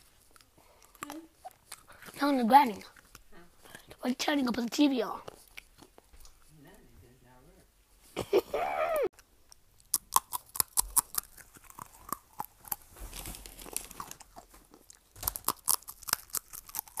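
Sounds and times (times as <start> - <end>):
person chewing and crunching: 0.0 - 2.2, 5.2 - 6.4, 9.1 - 17.0.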